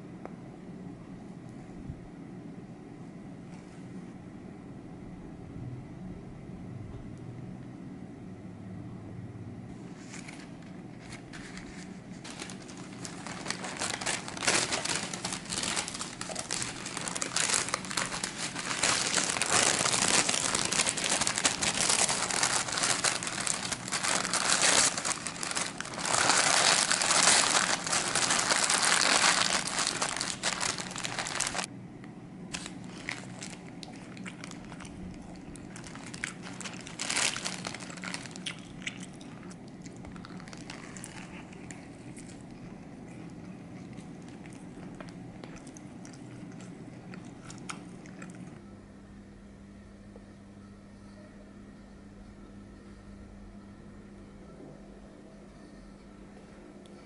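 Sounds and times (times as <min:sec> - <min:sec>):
parchment paper crinkling: 0:09.9 - 0:31.7, 0:32.5 - 0:48.5.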